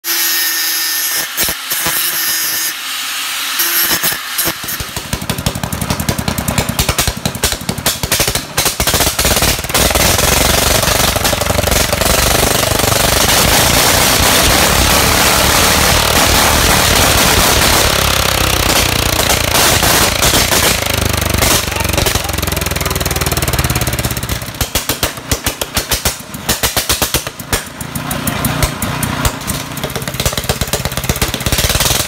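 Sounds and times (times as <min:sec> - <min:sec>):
angle grinder cutting metal: 0:00.0 - 0:06.1, 0:09.7 - 0:24.9
tractor engine starting and running: 0:00.0 - 0:32.0.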